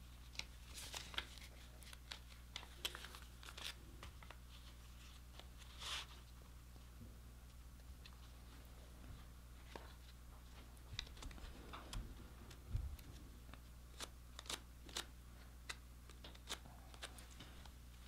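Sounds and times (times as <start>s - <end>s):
paper banknotes crinkling: 0.2s - 6.2s, 10.9s - 17.7s.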